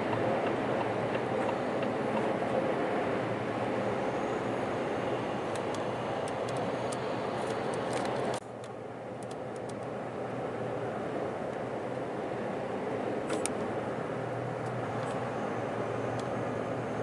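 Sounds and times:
turn signal ticking: 0:00.0 - 0:02.3
truck engine and road noise: 0:00.0 - 0:17.0.

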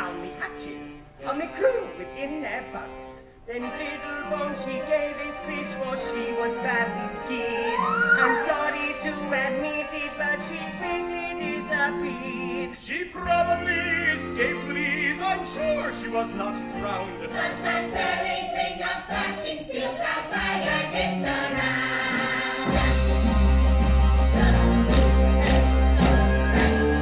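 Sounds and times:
chorus singing: 0:17.1 - 0:27.0
orchestra playing: 0:21.4 - 0:27.0.

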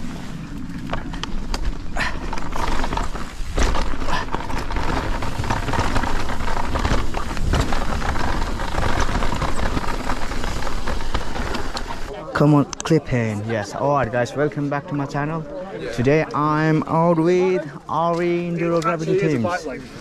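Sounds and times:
bikes rattling: 0:00.0 - 0:13.3, 0:13.9 - 0:20.0
tyres crunching on gravel: 0:00.1 - 0:12.1.

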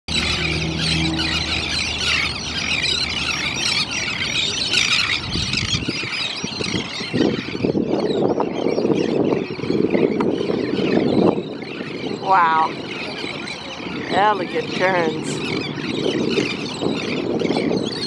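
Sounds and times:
terns calling: 0:00.1 - 0:18.0.

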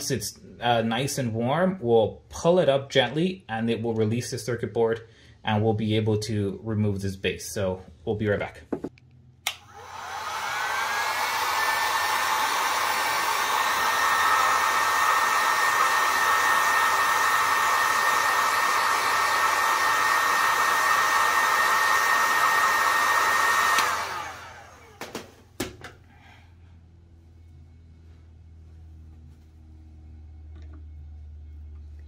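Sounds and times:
clicks: 0:08.9 - 0:09.7
heat gun fan whine: 0:09.4 - 0:31.9.

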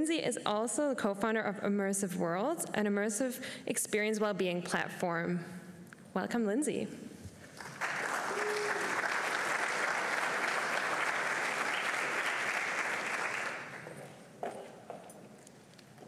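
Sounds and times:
audience applauding: 0:07.6 - 0:14.2.

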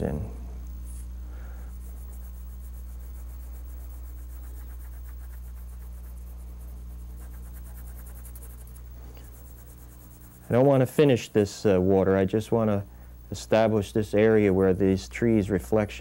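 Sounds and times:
low hum: 0:00.0 - 0:16.0
pencil scratching on paper: 0:00.9 - 0:10.8.

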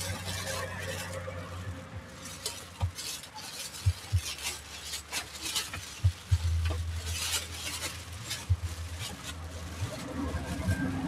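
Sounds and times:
steady low hum: 0:05.6 - 0:10.9.

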